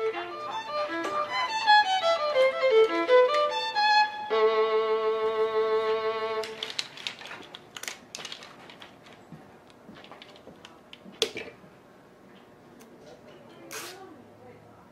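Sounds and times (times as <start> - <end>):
violin long note: 0.0 - 6.6.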